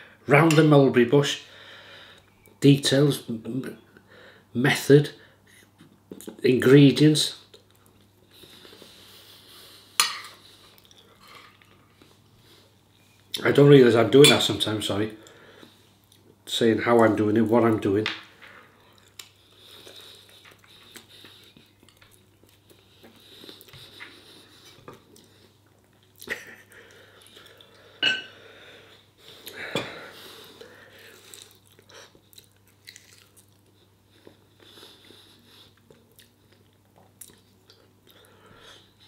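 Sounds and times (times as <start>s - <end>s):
person chewing and biting: 31.1s - 33.7s.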